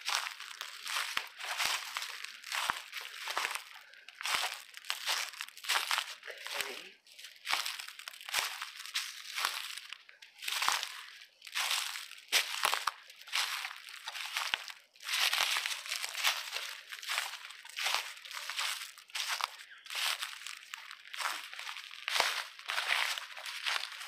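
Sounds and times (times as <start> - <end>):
footsteps crunching dry leaves: 0.0 - 24.0.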